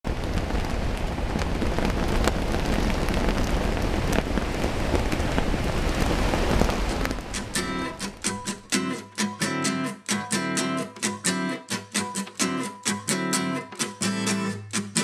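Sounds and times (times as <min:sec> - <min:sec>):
strong wind buffeting microphone: 0:00.1 - 0:08.2.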